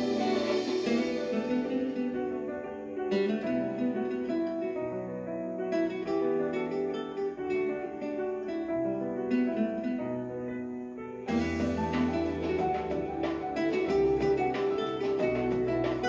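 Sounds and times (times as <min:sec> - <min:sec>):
plucked string music through speakers: 0:00.0 - 0:04.6, 0:11.3 - 0:16.0.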